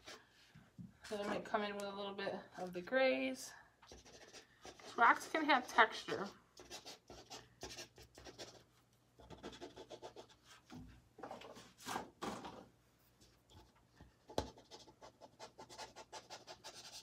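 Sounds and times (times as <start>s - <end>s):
pastel scratching on paper: 3.9s - 10.6s, 14.4s - 17.0s.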